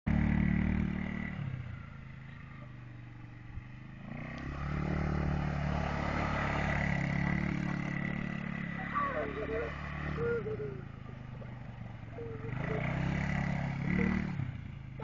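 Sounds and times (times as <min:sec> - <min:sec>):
quad bike engine revving: 0:00.1 - 0:15.0.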